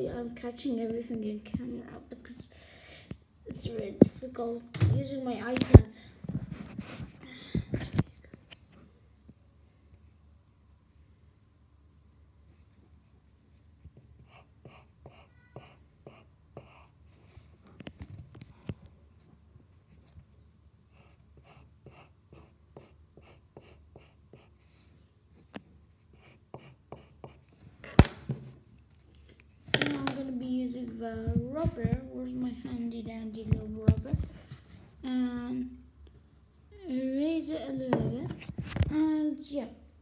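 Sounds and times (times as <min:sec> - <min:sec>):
pencil scratching on paper: 0:14.2 - 0:17.5, 0:20.9 - 0:25.0, 0:25.9 - 0:27.6.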